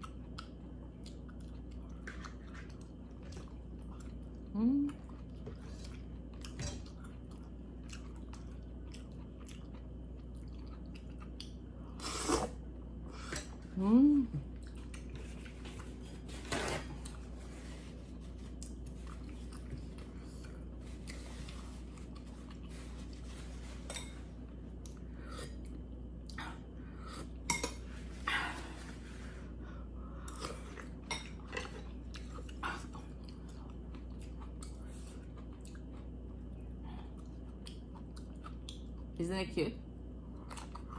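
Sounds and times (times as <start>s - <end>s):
chewing and slurping soup: 0.0s - 13.6s, 14.4s - 28.2s, 29.1s - 39.2s
person humming: 4.5s - 4.9s, 13.8s - 14.4s.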